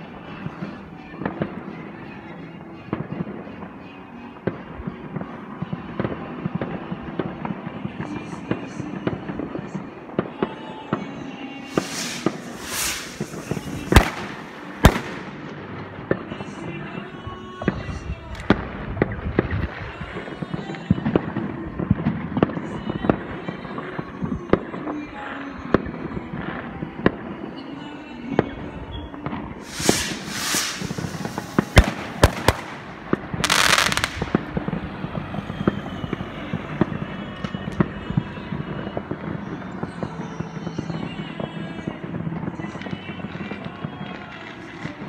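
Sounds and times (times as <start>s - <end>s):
distant firework bangs and pops: 4.4s - 16.8s, 29.2s - 45.0s
rushing firework hisses: 11.7s - 15.5s, 29.6s - 34.4s
sharp loud firework bangs: 11.7s - 15.9s, 29.6s - 35.4s.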